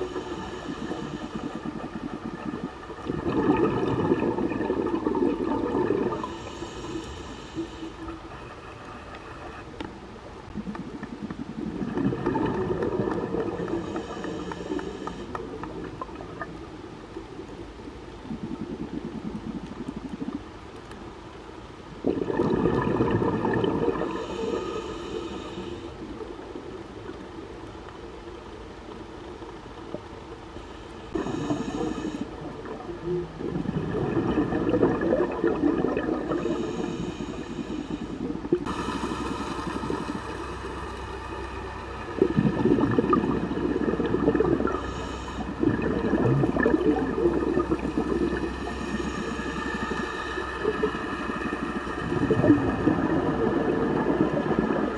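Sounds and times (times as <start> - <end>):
regulator hiss on inhale: 0.0 - 3.1, 6.0 - 9.9, 12.9 - 16.2, 23.9 - 26.4, 30.5 - 32.5, 36.2 - 42.1, 44.4 - 54.9
exhaled bubbles rushing: 0.0 - 6.5, 10.5 - 14.4, 22.0 - 24.3, 31.1 - 37.3, 38.2 - 54.9.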